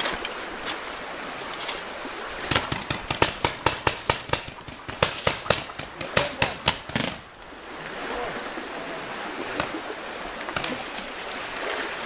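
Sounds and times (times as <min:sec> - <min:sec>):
paintball markers firing: 0:02.5 - 0:07.2.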